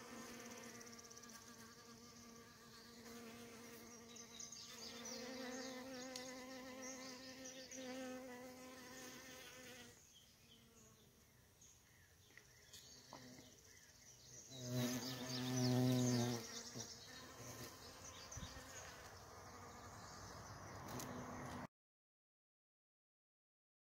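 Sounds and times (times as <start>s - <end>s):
bees buzzing: 0.0s - 10.9s, 14.5s - 21.7s.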